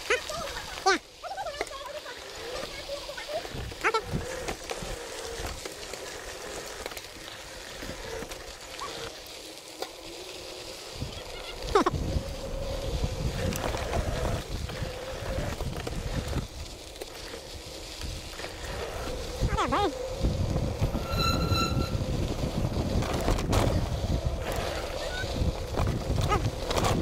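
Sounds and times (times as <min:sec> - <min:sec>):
bike rattling over bumps: 0:00.0 - 0:27.0
bike tyres crunching on gravel: 0:00.0 - 0:27.0
wind on microphone: 0:10.9 - 0:16.6, 0:18.0 - 0:27.0.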